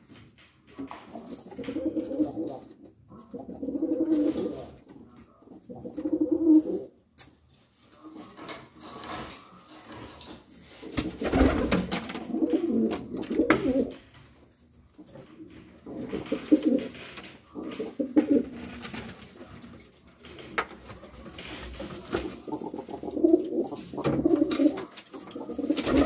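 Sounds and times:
pigeons cooing: 1.4s - 6.9s, 11.2s - 14.0s, 15.8s - 18.8s, 21.0s - 26.0s.

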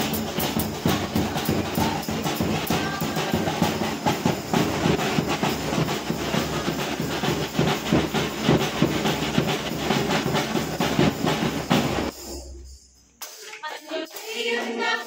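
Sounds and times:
drum in quick rhythm: 0.0s - 15.0s
jingling hand percussion: 0.0s - 15.0s
people clapping: 13.2s - 15.0s.

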